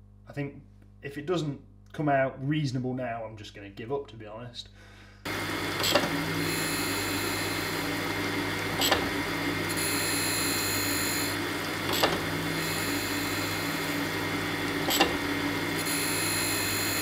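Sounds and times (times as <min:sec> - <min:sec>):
grinder motor humming: 0:05.3 - 0:17.0
high grinding hiss: 0:05.3 - 0:17.0
machine table knocking: 0:05.3 - 0:17.0.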